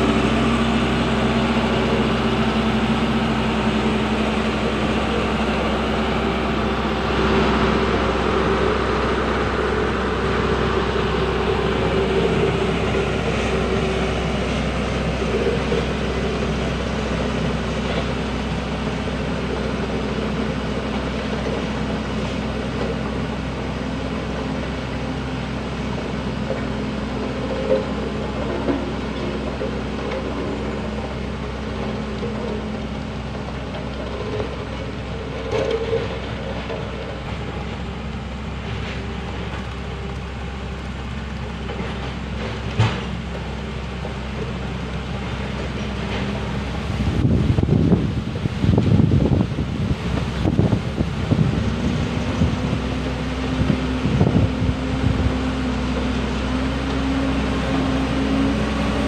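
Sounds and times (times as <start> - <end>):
diesel roller engine running: 0.0 - 59.0.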